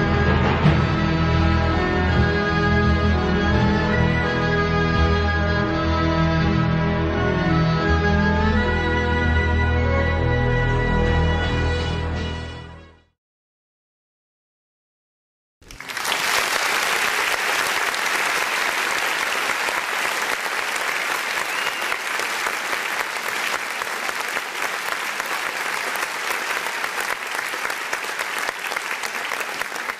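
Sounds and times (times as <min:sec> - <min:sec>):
audience applause: 0:15.6 - 0:29.9.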